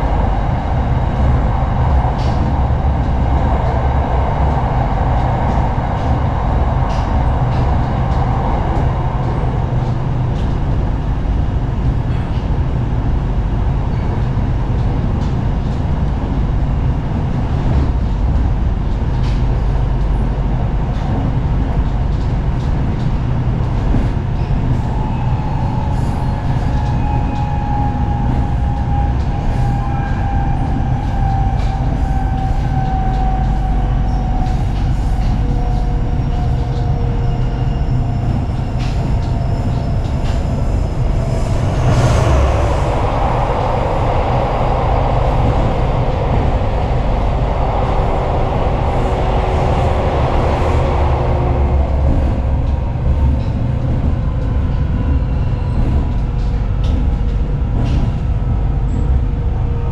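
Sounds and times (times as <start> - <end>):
train wheels rumbling: 0.0 - 59.9.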